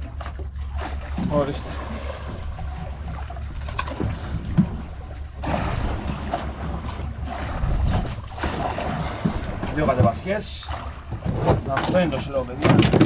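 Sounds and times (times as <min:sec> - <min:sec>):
boat engine rumble: 0:00.0 - 0:13.0
wind on microphone: 0:07.3 - 0:10.1.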